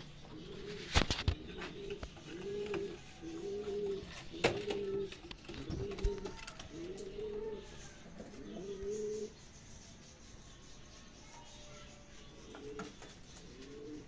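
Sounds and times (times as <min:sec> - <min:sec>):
pigeons cooing: 0:00.0 - 0:09.5, 0:12.3 - 0:14.0.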